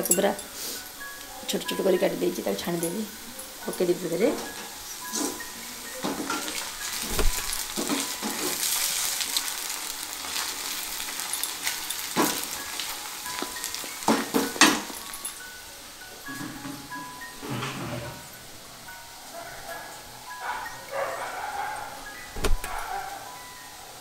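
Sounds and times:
deep-frying sizzle in oil: 0:00.0 - 0:17.5.

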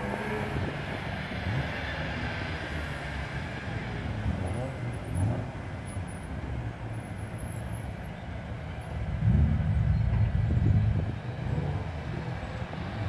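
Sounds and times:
race car engines revving: 0:00.0 - 0:13.0.

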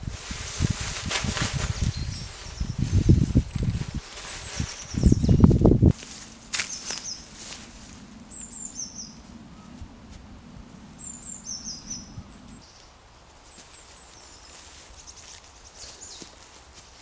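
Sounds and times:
songbird singing: 0:01.7 - 0:03.4, 0:04.4 - 0:05.6, 0:06.4 - 0:17.0
faint low hum: 0:06.0 - 0:14.0.

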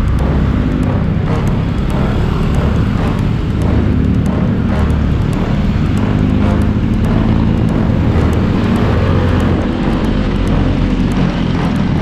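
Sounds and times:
motorcycle engine running: 0:00.0 - 0:12.0
wind noise: 0:00.0 - 0:12.0.

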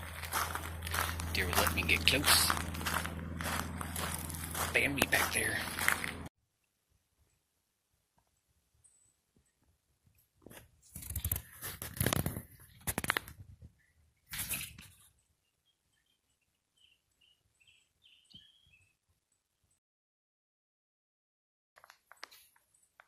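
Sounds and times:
faint bird chirps: 0:13.8 - 0:19.0.

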